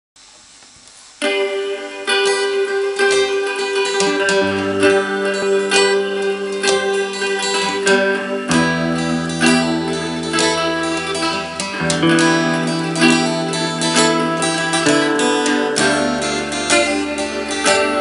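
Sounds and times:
backing track with held tones: 0:00.2 - 0:18.0
faint hiss: 0:00.2 - 0:18.0
acoustic guitar picking: 0:01.2 - 0:18.0.

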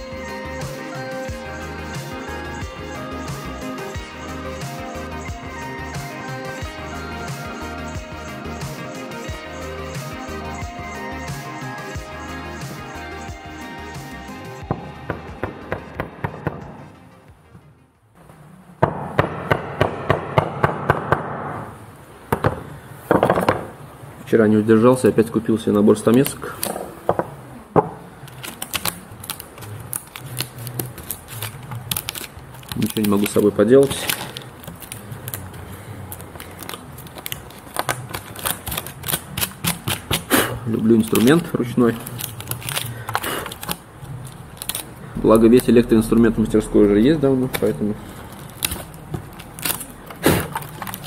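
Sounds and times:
dry wood shavings crackling: 0:28.2 - 0:51.0.

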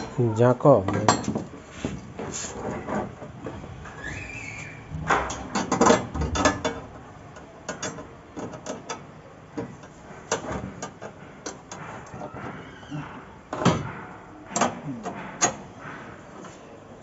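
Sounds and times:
metal clicks and clanks: 0:04.9 - 0:12.5.

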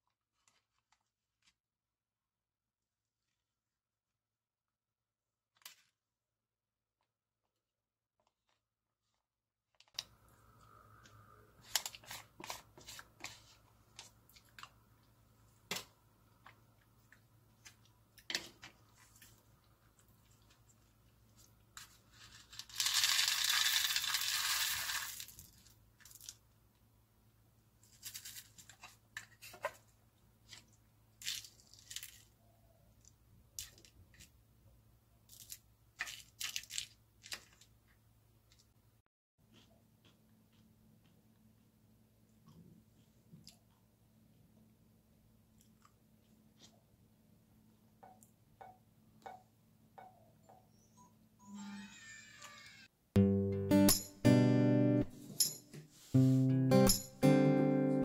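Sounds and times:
crackling plastic rustle: 0:21.8 - 0:26.4, 0:30.5 - 0:32.4, 0:35.3 - 0:37.7.

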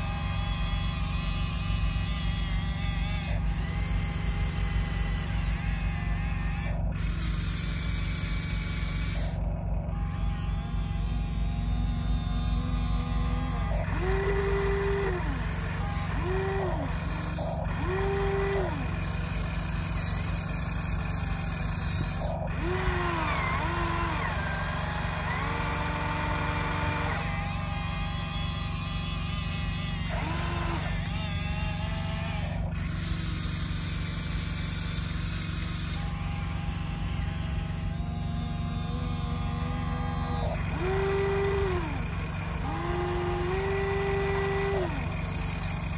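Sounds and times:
small electric motors whining: 0:00.0 - 0:45.9
steady low hum: 0:00.0 - 0:45.9.

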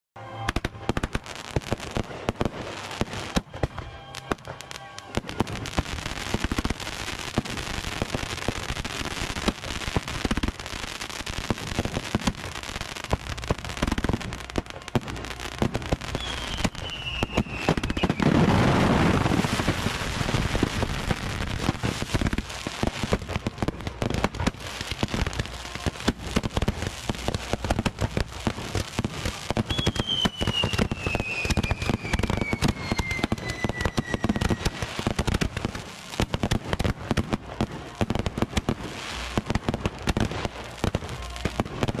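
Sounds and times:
fireworks bangs and crackles: 0:00.2 - 0:42.0
fountain fireworks hissing: 0:00.4 - 0:42.0
firework whistle falling in pitch: 0:16.0 - 0:20.4, 0:29.6 - 0:34.9.

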